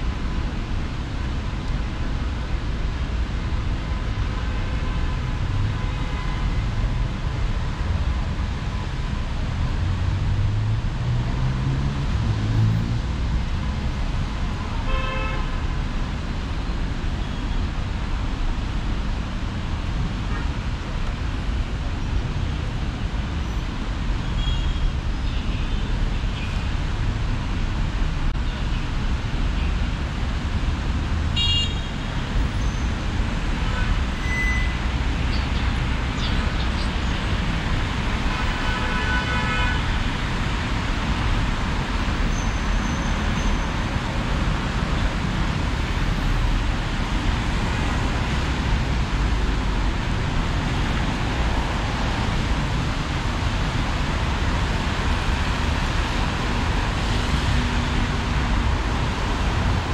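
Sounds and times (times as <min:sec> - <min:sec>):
street traffic: 0:00.0 - 0:59.9
car horn: 0:14.9 - 0:15.6, 0:31.4 - 0:31.9, 0:38.3 - 0:39.9.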